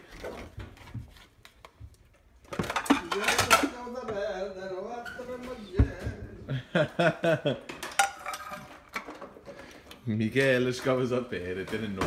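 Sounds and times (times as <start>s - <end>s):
people talking: 2.9s - 6.6s, 10.0s - 12.0s.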